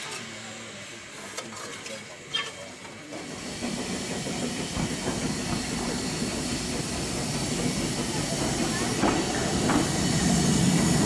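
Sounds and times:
steam locomotive hissing steam: 0.0s - 11.0s.

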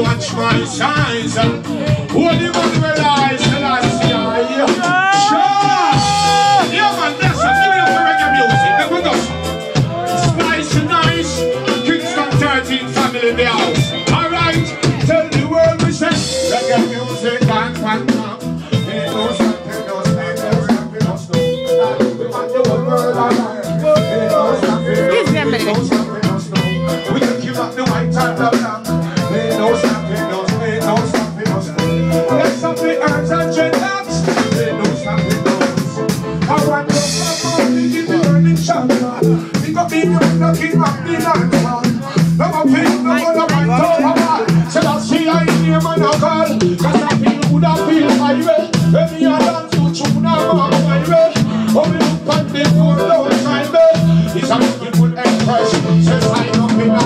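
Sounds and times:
live reggae music: 0.0s - 57.0s
pulsing bass line: 0.0s - 57.0s.

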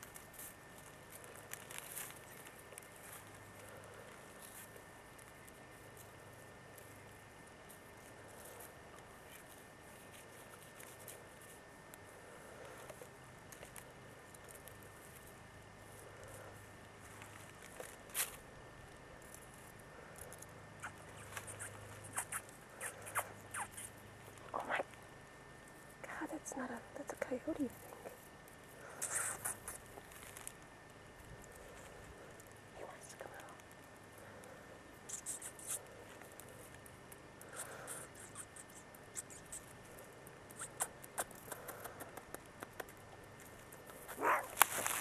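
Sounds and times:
faint rustling crackles: 0.0s - 45.0s
canine pup squeaking: 20.8s - 24.8s, 35.1s - 35.8s, 37.6s - 39.7s, 40.5s - 41.7s, 44.1s - 44.6s.

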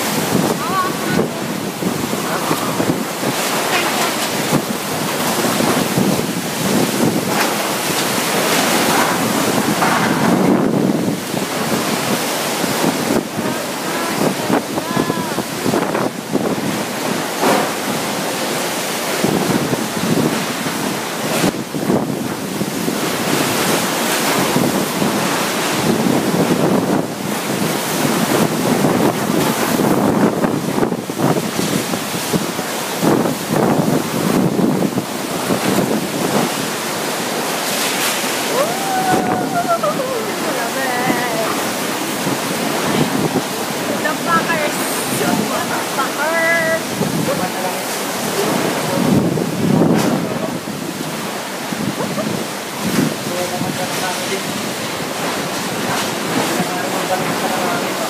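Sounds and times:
driving rain: 0.0s - 58.0s
strong wind gusting: 0.0s - 58.0s
wind buffeting microphone: 0.0s - 58.0s.

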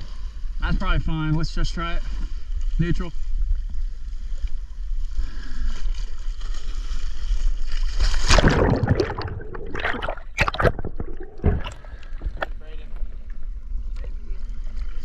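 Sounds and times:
water sloshing against hull: 2.0s - 15.0s
loud splash of diver: 8.1s - 12.3s
churning bubbling water: 8.1s - 13.5s.

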